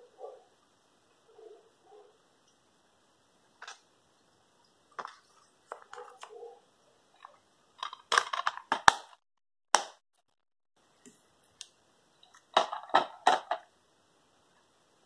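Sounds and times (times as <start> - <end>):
plastic clatter: 7.2 - 9.2, 12.4 - 13.7.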